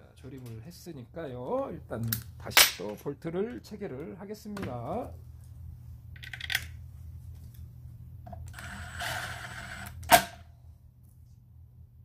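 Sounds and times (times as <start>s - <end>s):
power tool rattling whirr: 8.5s - 10.4s.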